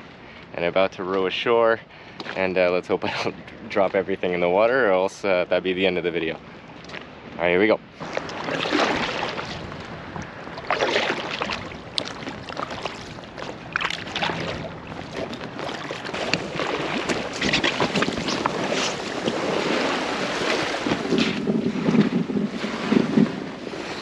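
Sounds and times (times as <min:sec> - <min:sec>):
wind buffeting microphone: 0:07.1 - 0:24.0
paddle splashing in water: 0:08.0 - 0:24.0.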